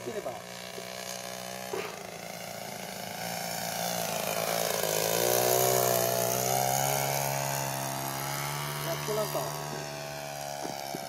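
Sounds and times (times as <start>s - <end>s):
model airplane engine buzzing: 0.0s - 11.0s.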